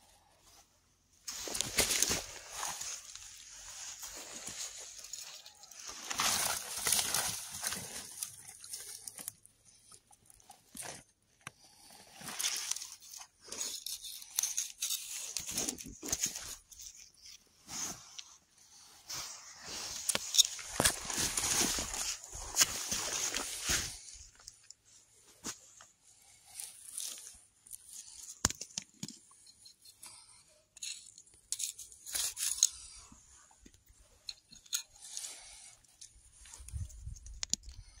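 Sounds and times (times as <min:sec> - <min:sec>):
pine needles rustling and crackling: 0:01.3 - 0:11.0, 0:19.2 - 0:24.8, 0:26.2 - 0:28.7.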